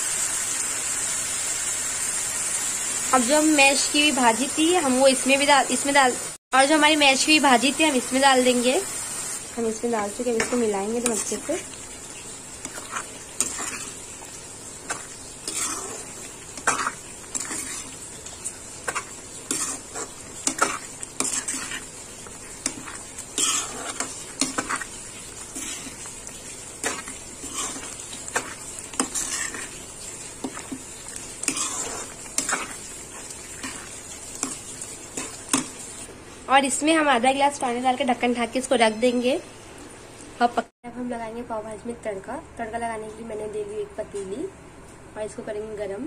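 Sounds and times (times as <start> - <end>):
food sizzling: 0.0 - 40.7
spatula scraping a pan: 10.2 - 11.7, 12.6 - 35.9.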